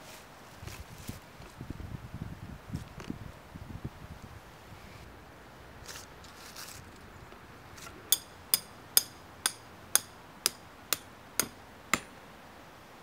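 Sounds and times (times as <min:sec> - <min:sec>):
hammer striking with ring: 0:08.1 - 0:12.1.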